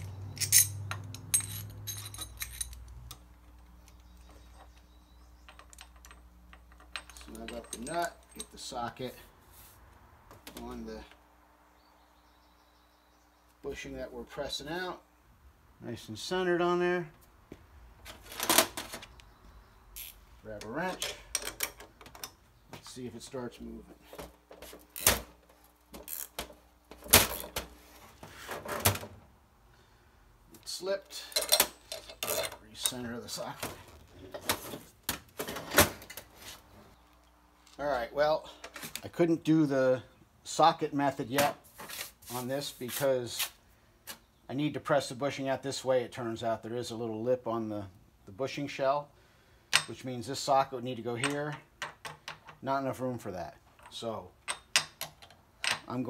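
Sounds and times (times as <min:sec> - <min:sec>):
wrench and sockets clanking: 0:00.0 - 0:03.3, 0:05.4 - 0:08.8, 0:31.2 - 0:33.0
steel hardware clinking: 0:00.0 - 0:04.8, 0:05.4 - 0:08.8, 0:31.1 - 0:33.0.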